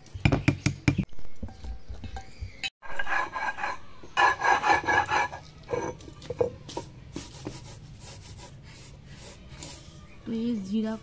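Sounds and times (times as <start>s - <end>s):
stone roller grinding on stone slab: 2.8s - 6.0s.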